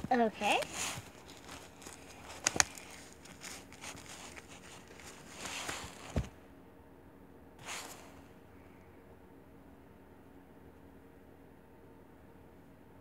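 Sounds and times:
soft rustling of doll clothes: 0.0 - 6.4
dull thump: 6.0 - 6.4.

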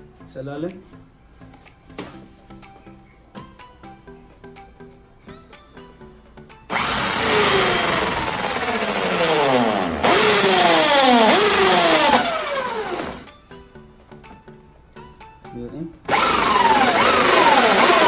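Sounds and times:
background music: 0.0 - 18.0
drill with hole saw cutting plastic: 6.7 - 13.3, 16.1 - 18.0.

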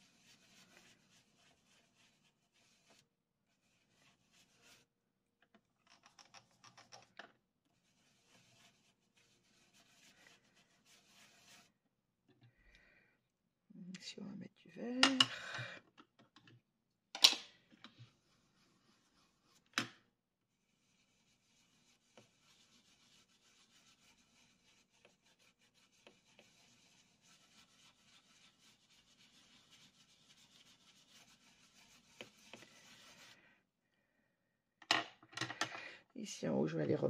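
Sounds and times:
brush swishing on card: 7.9 - 11.7, 20.7 - 33.4.

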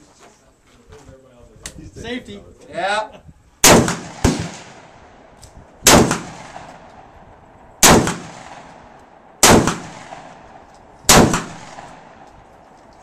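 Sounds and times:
shotgun blasts with echo: 3.6 - 5.1, 5.8 - 7.2, 7.8 - 12.3.

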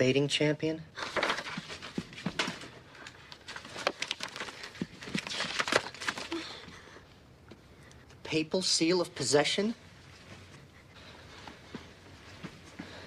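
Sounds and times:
rustling: 1.0 - 6.8.

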